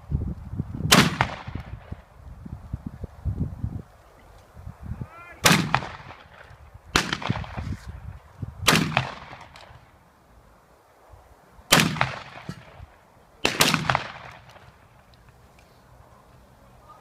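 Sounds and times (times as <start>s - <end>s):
shotgun shots with echo: 0.9s - 1.8s, 5.4s - 7.6s, 8.6s - 9.8s, 11.7s - 12.8s, 13.4s - 14.7s.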